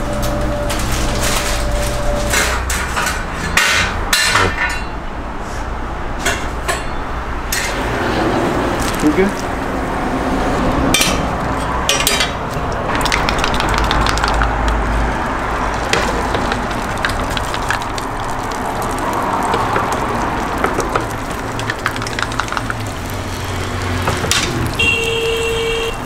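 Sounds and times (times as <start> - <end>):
sharp clicks and taps: 12.6 - 14.8
egg sizzling on griddle: 12.8 - 26.0.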